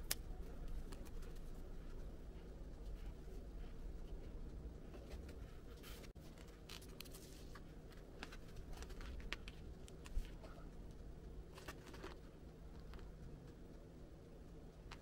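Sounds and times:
hands rustling sticker sheet: 0:00.0 - 0:10.5
low steady hum: 0:00.0 - 0:15.0.

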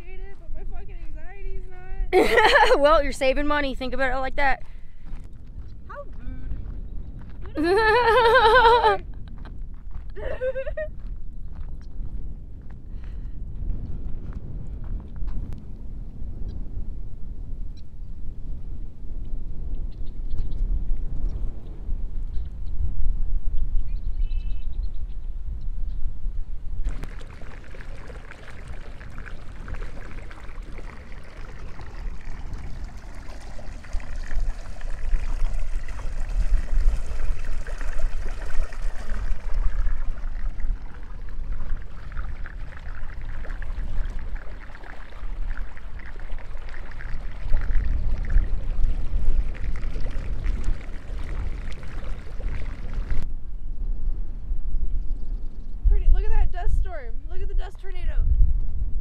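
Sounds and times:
wind buffeting microphone: 0:00.0 - 0:59.0
water rushing and churning: 0:26.8 - 0:53.2.

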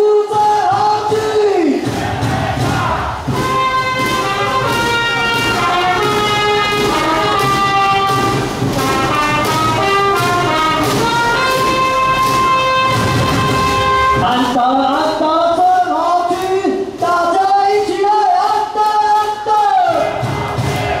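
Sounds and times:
bass drums beating: 0:00.3 - 0:15.3, 0:19.9 - 0:21.0
trumpet playing a melody: 0:03.3 - 0:14.6.

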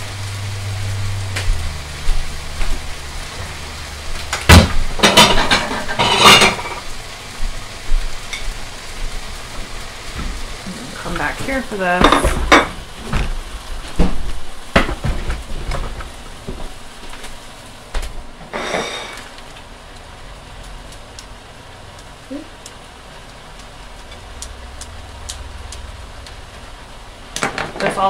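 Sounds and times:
chicken frying in a pan: 0:00.0 - 0:28.0
kitchen things clacking on countertop: 0:05.0 - 0:06.8, 0:11.4 - 0:13.3.

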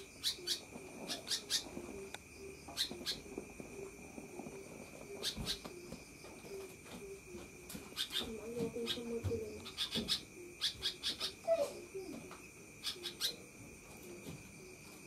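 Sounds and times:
bulbul chattering calls: 0:00.1 - 0:01.8.

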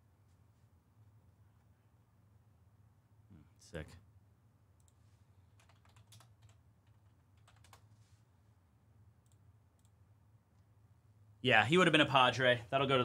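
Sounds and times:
typing on keyboard: 0:05.6 - 0:07.9.

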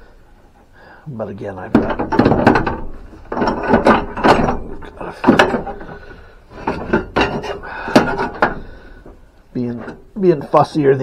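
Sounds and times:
metal nozzles knocking together: 0:01.6 - 0:10.8.

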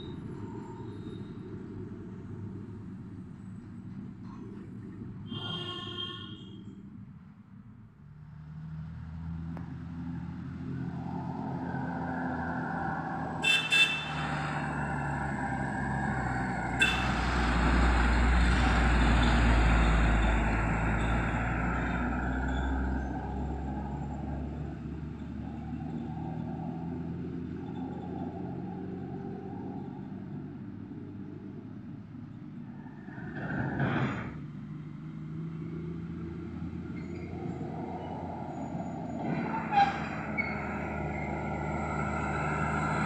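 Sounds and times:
distant vehicle engine drone: 0:06.5 - 0:43.0
diesel truck passing: 0:08.1 - 0:43.0
horn toots: 0:13.4 - 0:14.4, 0:16.8 - 0:17.3.

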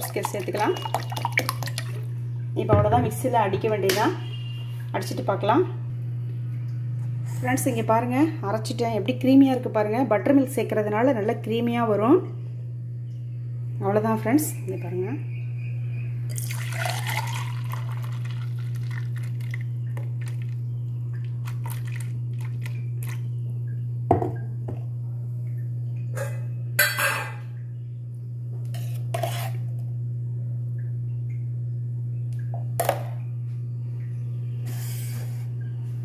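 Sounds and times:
thick liquid pouring into glass: 0:00.0 - 0:02.0, 0:16.3 - 0:19.6, 0:21.4 - 0:23.2
low hum: 0:00.0 - 0:36.0.

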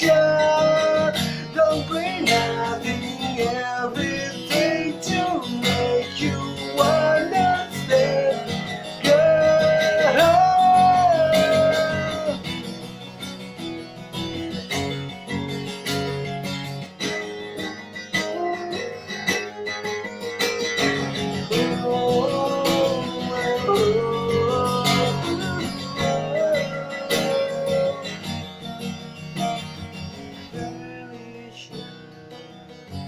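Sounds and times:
man singing: 0:00.0 - 0:12.7, 0:18.2 - 0:28.7, 0:30.3 - 0:32.8
acoustic guitar playing: 0:00.0 - 0:33.0.

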